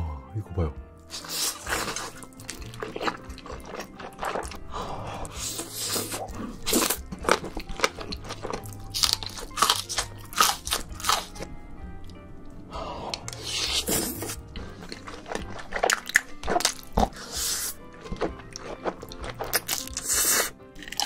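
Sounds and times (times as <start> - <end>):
background music: 0.0 - 21.0
slurping noodles: 1.1 - 8.2, 13.0 - 21.0
crunchy wet chewing: 1.1 - 12.2, 13.1 - 21.0.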